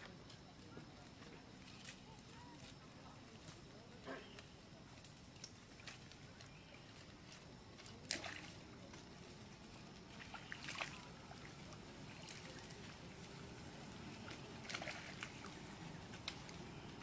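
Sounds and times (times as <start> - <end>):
faint water sloshing: 0.0 - 17.0
water splashes: 5.4 - 17.0.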